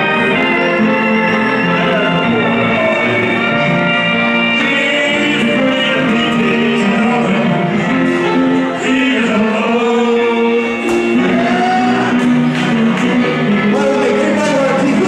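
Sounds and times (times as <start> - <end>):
instrumental backing music: 0.0 - 15.0
man singing into microphone: 1.4 - 3.8, 4.4 - 15.0.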